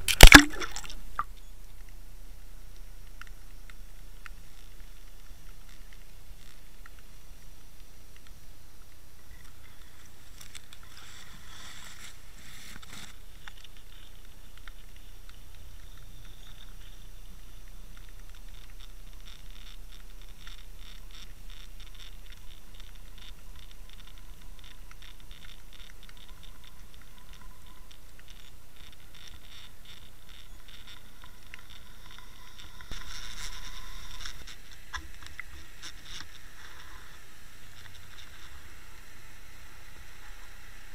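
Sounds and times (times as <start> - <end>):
crackling underwater clicks: 0.0 - 40.9.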